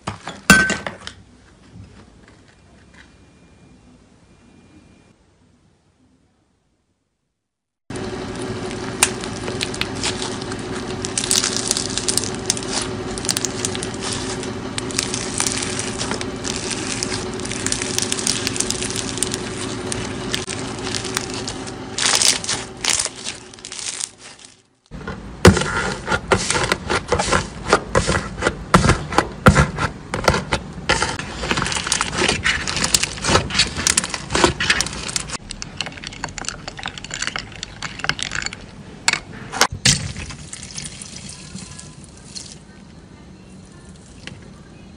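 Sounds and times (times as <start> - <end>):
slime crackling: 8.4 - 24.8, 31.2 - 35.4.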